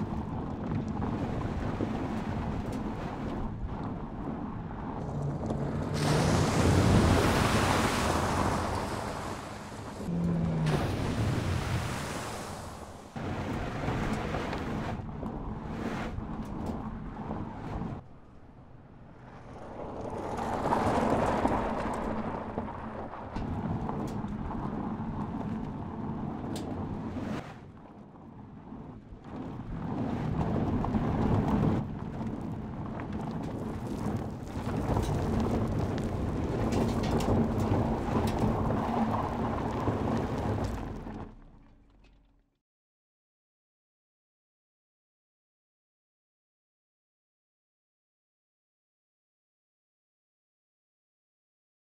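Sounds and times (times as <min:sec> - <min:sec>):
tyres rumbling on loose dirt: 0:00.0 - 0:15.6, 0:18.9 - 0:27.2, 0:28.7 - 0:42.4.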